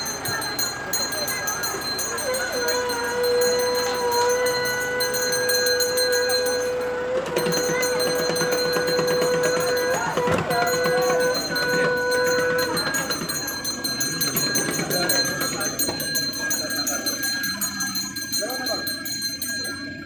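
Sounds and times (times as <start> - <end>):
crowd murmur: 0.0 - 20.0.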